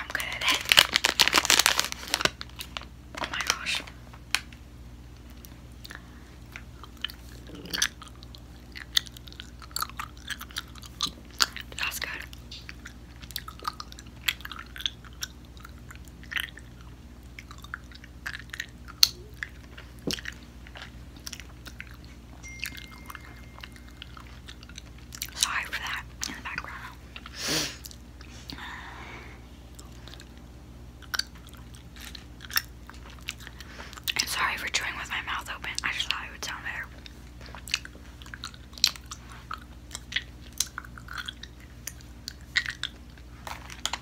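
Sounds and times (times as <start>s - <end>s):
sticky mouth clicks chewing candy: 5.2s - 22.2s, 31.0s - 34.3s, 37.0s - 44.0s.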